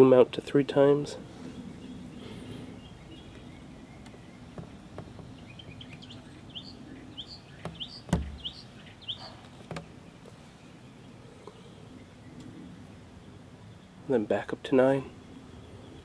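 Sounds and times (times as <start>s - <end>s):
bird chirping: 1.3s - 14.2s, 14.8s - 16.0s
thump: 7.6s - 8.4s.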